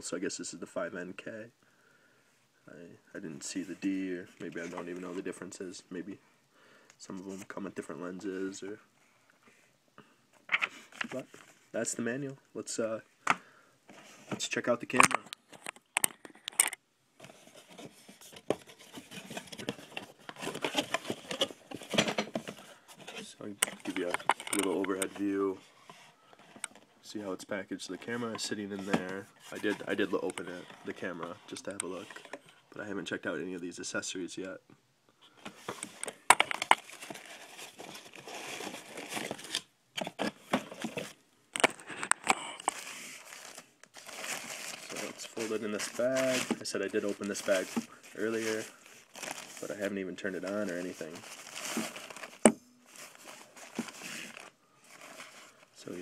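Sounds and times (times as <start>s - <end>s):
cardboard and paper rustling: 13.9s - 32.6s, 35.4s - 56.0s.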